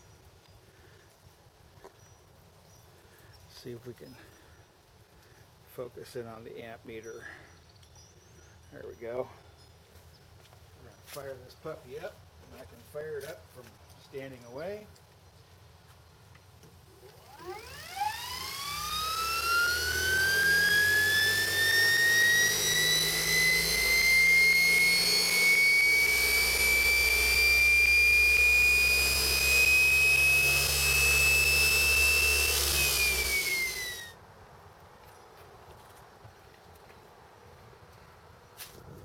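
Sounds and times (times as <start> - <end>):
electric motor whine: 17.0 - 34.2
low hum: 17.0 - 34.2.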